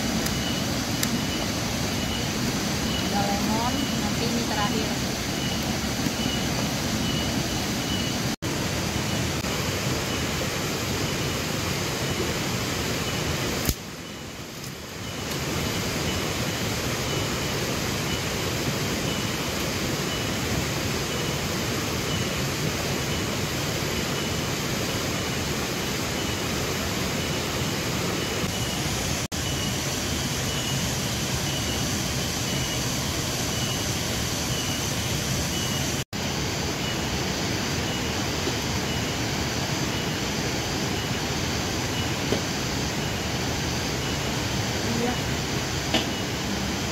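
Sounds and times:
faint high pulsing tone: 0.1 - 13.4.

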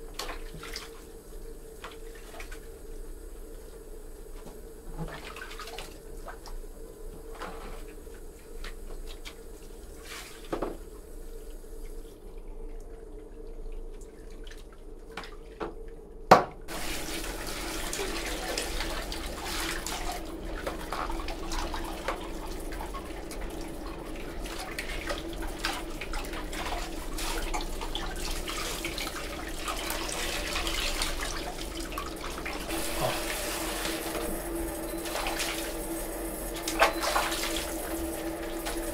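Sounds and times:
small splashes and drips: 0.1 - 1.1, 5.0 - 6.6, 11.4 - 16.0, 16.9 - 33.1
shower head spraying water: 32.6 - 38.9.

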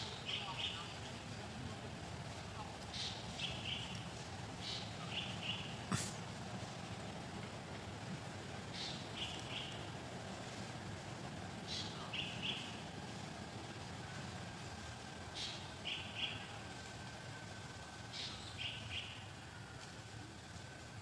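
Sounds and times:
outdoor background noise: 0.0 - 21.0
bird calling: 2.9 - 4.0, 4.6 - 6.2, 8.7 - 9.9, 11.7 - 12.8, 15.3 - 16.6, 18.1 - 19.3.

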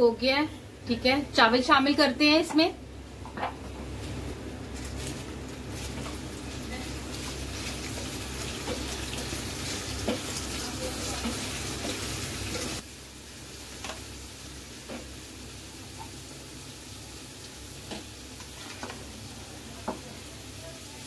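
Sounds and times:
stock boiling in a pot: 0.0 - 21.0.

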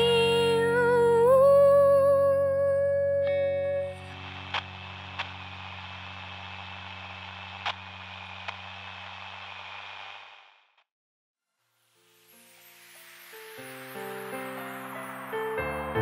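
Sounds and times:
low hum: 0.0 - 10.0
sharp clicks: 4.5 - 5.8.

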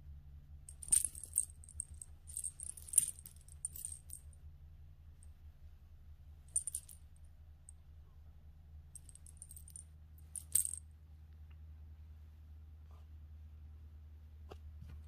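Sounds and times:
low steady hum: 0.0 - 15.0
cat collar jingling: 0.7 - 4.3, 6.6 - 7.0, 9.0 - 10.8.

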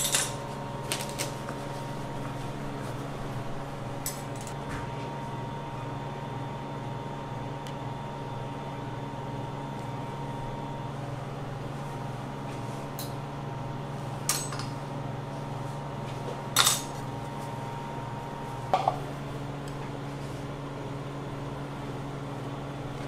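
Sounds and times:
kitchen machine hum: 0.0 - 23.0
kitchen utensils clinking: 14.3 - 14.7.

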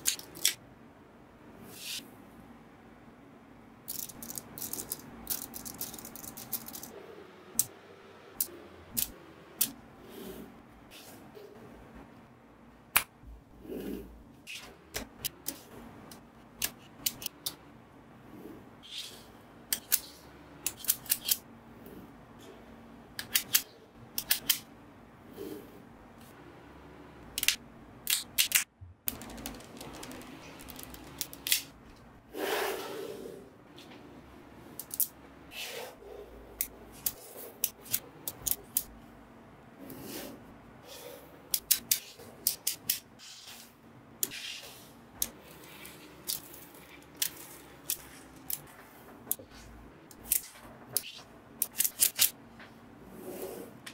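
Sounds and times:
magnetic balls snapping together: 27.4 - 32.1.

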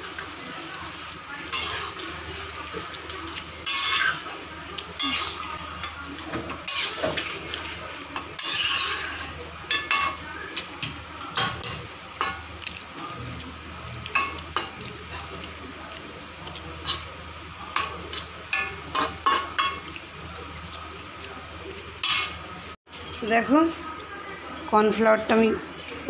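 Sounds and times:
sauce sizzling: 0.0 - 26.0
metal spatula scraping wok: 1.5 - 2.6, 3.6 - 4.4, 5.0 - 5.5, 6.4 - 7.4, 8.2 - 10.2.

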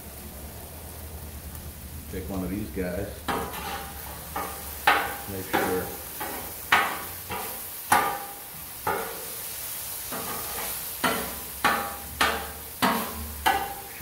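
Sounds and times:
chicken sizzling: 0.0 - 14.0
metal spatula striking griddle: 3.3 - 9.4, 10.1 - 14.0.

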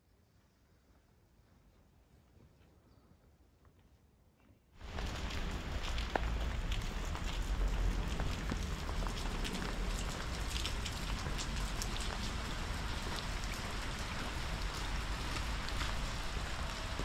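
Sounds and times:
rain on hard surfaces: 4.8 - 17.0.

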